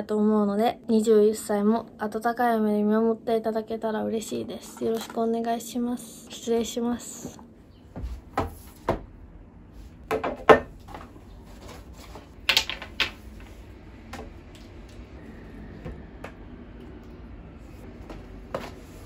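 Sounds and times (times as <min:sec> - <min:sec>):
hard objects knocking on table: 0:10.1 - 0:11.1.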